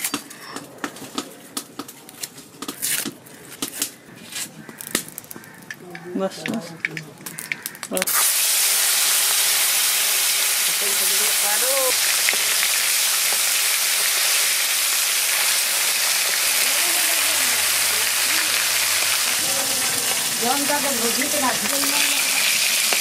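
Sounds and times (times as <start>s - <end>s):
fish sizzling in hot oil: 7.3s - 23.0s.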